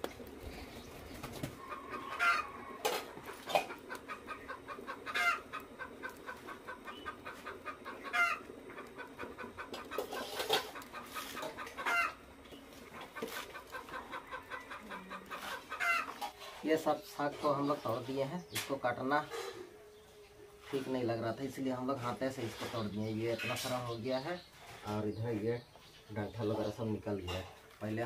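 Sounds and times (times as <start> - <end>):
chickens clucking: 0.0 - 28.0
chicken call rising in pitch: 1.6 - 3.3.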